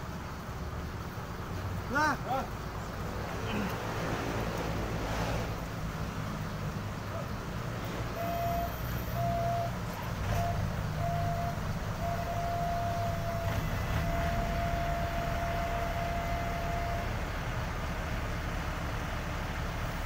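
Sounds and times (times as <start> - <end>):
diesel engine rumbling: 0.0 - 20.0
electronic warning beeper: 8.2 - 17.1.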